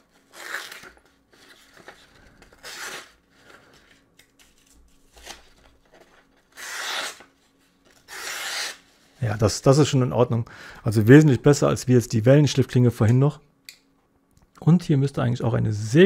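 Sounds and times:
blade slicing through paper: 6.5s - 7.3s.

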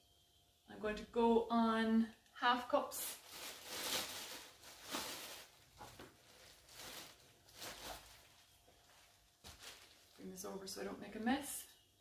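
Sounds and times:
plastic bag rustling: 3.0s - 10.8s.

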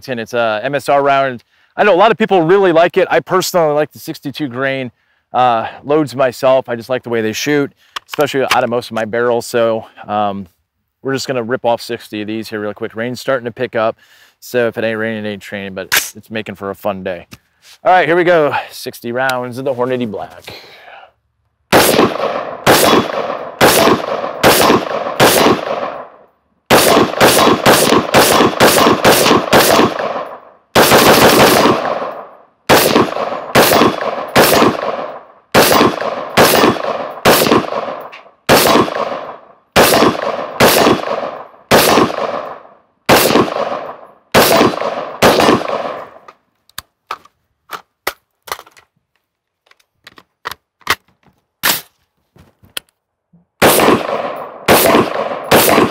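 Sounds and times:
gunshots with echo: 21.7s - 46.3s, 53.6s - 55.9s.

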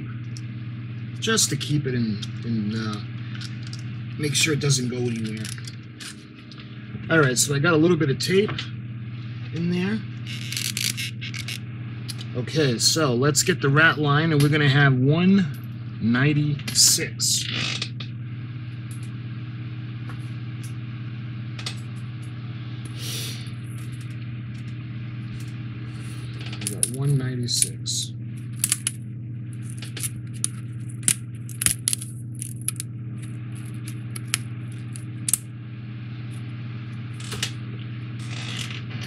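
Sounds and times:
steady low hum: 0.0s - 39.0s
plastic pieces clicking on desk: 28.6s - 29.0s, 31.0s - 32.8s.

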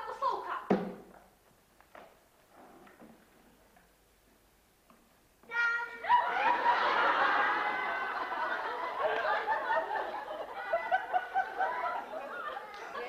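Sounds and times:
children laughing and shrieking: 5.8s - 13.0s.

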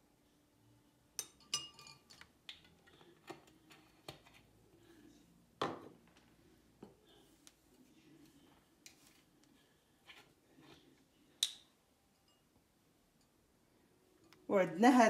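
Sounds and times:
glass bottles clinking: 1.2s - 2.2s
spoon clinking on ceramic bowl: 1.2s - 2.2s.

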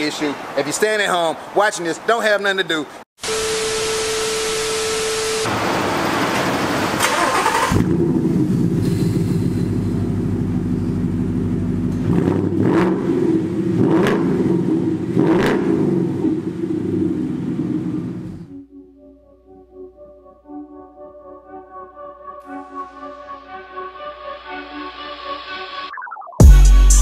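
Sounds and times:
steady beep: 3.2s - 5.5s
tv static hiss: 3.2s - 5.5s
engine revving: 5.4s - 18.5s
car engine idling: 5.5s - 12.1s.

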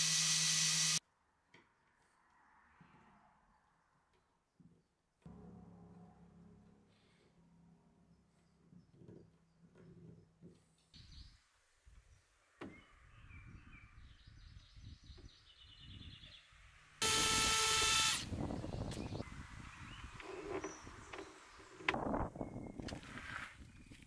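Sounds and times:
cordless drill motor whine: 0.0s - 1.0s, 17.0s - 18.3s.

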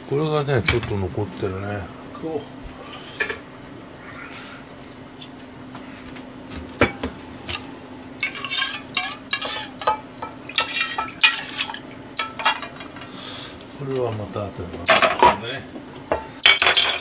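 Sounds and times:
steady low hum: 0.0s - 17.0s
metal ladle and bowl clinking: 8.2s - 13.1s.

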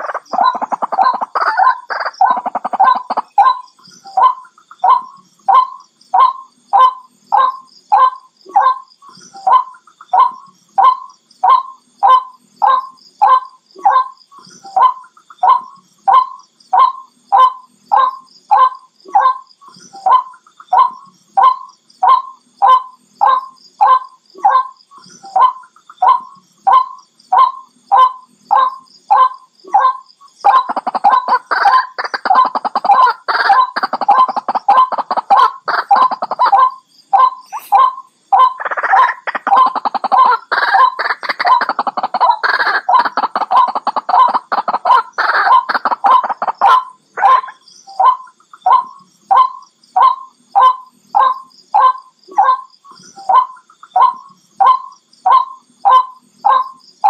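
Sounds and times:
waterhen calls: 0.0s - 3.6s, 20.0s - 56.8s.

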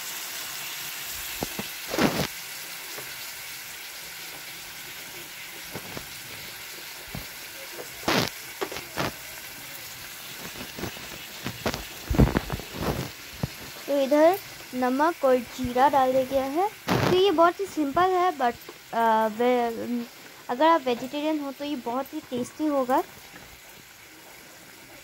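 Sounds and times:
food sizzling in hot oil: 0.0s - 25.0s
oil popping and spattering: 1.2s - 2.4s, 5.7s - 18.1s.

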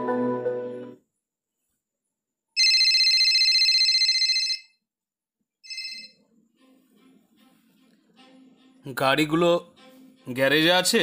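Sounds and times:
background music: 0.0s - 1.0s, 5.7s - 11.0s
telephone ringing: 2.6s - 4.9s, 5.6s - 6.3s.

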